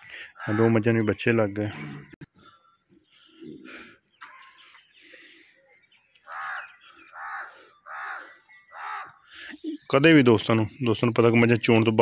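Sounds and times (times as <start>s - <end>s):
crows cawing: 0.0s - 0.9s, 6.2s - 9.5s.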